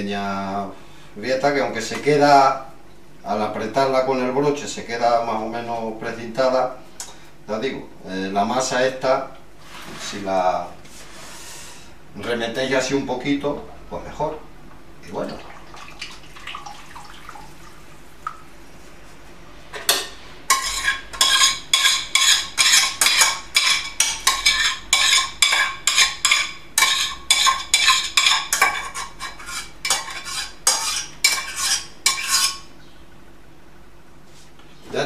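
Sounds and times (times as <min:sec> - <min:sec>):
utensil scraping a metal saucepan: 0:20.5 - 0:32.7.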